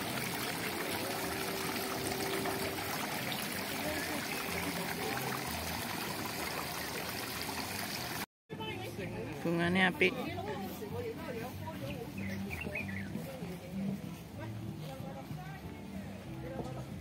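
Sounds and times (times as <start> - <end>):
fountain water trickling: 0.0 - 8.3.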